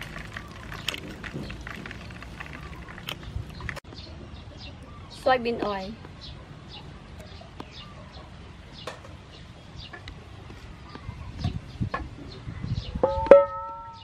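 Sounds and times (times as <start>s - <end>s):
faint birdsong: 0.0s - 14.0s.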